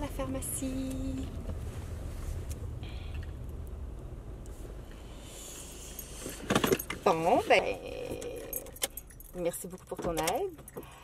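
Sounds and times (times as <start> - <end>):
car cabin rumble: 0.0 - 11.0
metallic jangle: 8.2 - 9.9.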